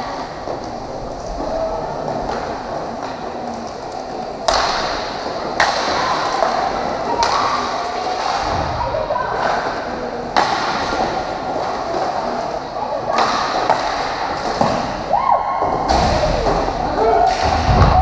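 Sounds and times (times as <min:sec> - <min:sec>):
hockey stick clacking on ball: 0:04.0 - 0:06.6.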